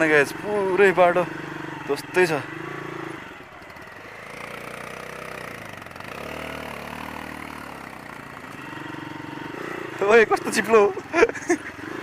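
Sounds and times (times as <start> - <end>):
motorcycle engine on dirt track: 0.0 - 12.0.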